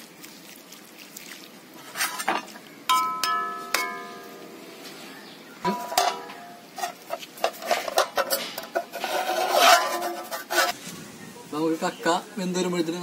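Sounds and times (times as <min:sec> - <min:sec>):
metal lid clanking on pot: 0:05.6 - 0:08.9.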